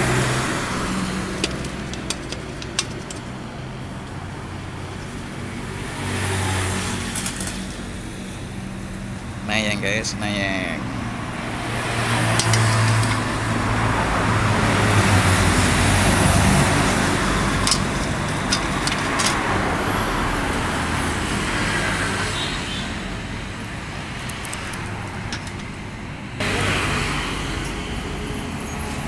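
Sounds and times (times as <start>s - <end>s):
vehicle engine rumble: 0.0s - 29.0s
tool case clicks: 1.4s - 3.3s, 17.5s - 19.5s.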